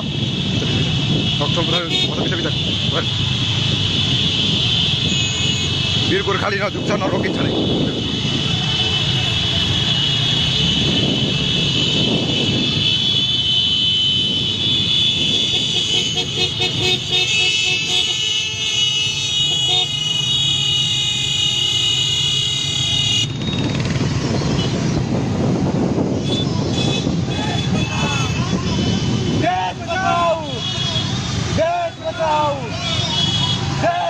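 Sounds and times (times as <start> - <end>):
horns sounding: 0.0 - 24.9, 26.2 - 34.0
motorcycle engines running: 22.8 - 29.4.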